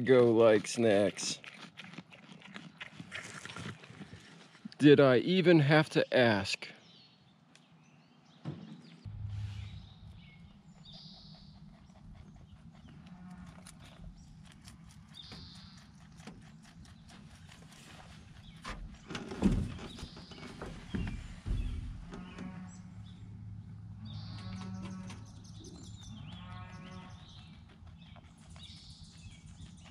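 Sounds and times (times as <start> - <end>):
rabbit chewing food: 0.0 - 4.3, 9.5 - 20.2, 25.8 - 29.9.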